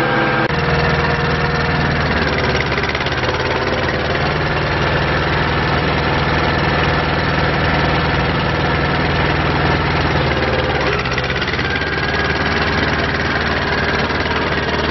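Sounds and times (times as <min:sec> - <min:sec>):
tractor diesel engine running: 0:00.0 - 0:14.9.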